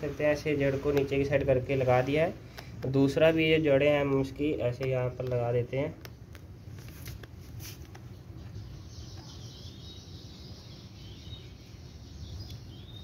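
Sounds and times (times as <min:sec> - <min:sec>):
hands working gravelly soil: 0:00.0 - 0:04.2
faint birds chirping: 0:00.0 - 0:13.0
low background noise: 0:00.0 - 0:13.0.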